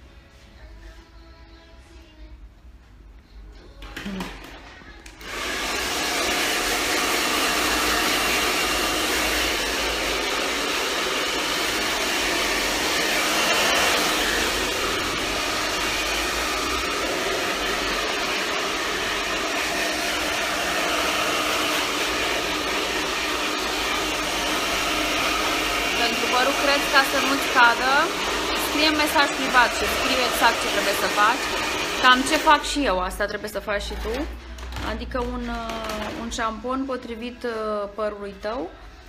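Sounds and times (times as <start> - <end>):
hair dryer running: 3.9 - 32.9.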